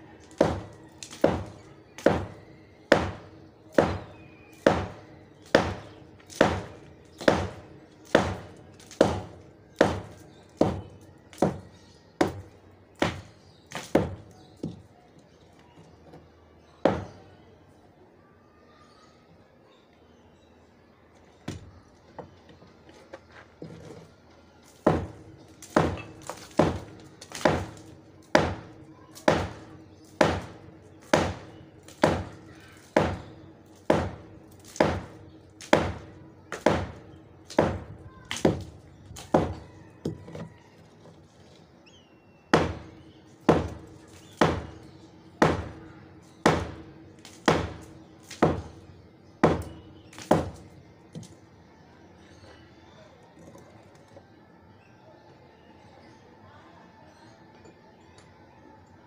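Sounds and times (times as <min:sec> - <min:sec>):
hammer striking concrete: 0:00.2 - 0:14.8, 0:16.8 - 0:17.2, 0:24.7 - 0:40.5, 0:42.5 - 0:48.8, 0:49.4 - 0:51.3.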